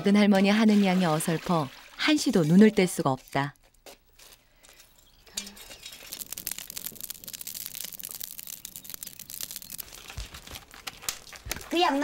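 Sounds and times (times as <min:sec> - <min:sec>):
dry stalks crackling in fire: 0:04.1 - 0:12.0.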